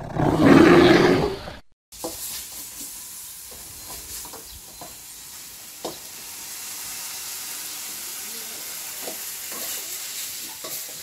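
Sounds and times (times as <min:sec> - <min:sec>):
food sizzling in a wok: 0:01.9 - 0:11.0.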